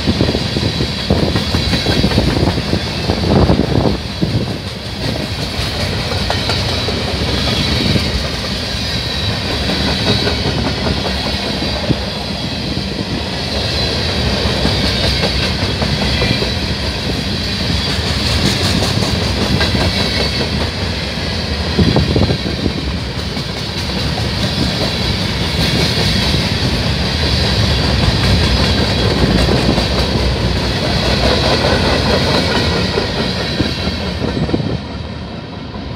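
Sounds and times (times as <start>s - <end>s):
train wheels rumbling on rail: 0.0s - 35.9s
wheels clicking over rail joints: 1.1s - 12.1s, 21.9s - 34.9s.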